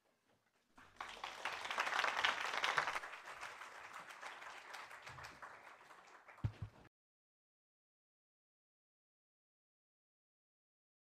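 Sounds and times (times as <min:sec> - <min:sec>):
audience applauding: 0:00.8 - 0:06.9.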